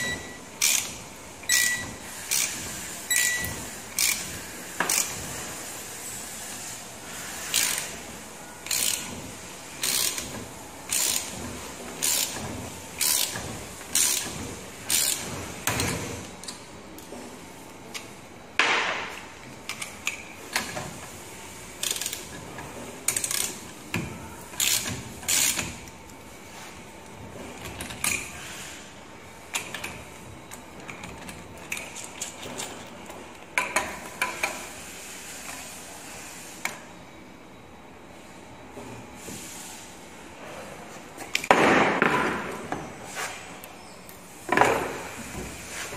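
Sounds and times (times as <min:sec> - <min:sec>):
wrench clicking tightening bolt: 0:00.6 - 0:00.9, 0:04.0 - 0:04.2, 0:04.9 - 0:05.1, 0:08.7 - 0:09.1, 0:09.8 - 0:10.3, 0:13.0 - 0:13.4, 0:24.6 - 0:25.7.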